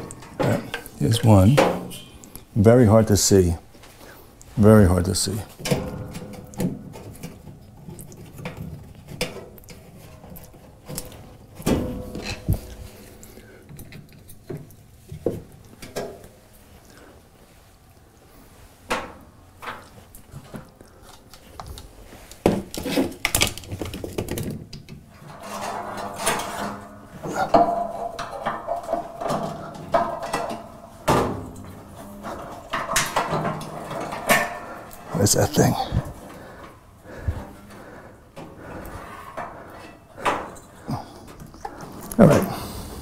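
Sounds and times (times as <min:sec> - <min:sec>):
rattling and scraping: 0:00.0 - 0:02.4, 0:04.0 - 0:14.7, 0:22.1 - 0:43.0.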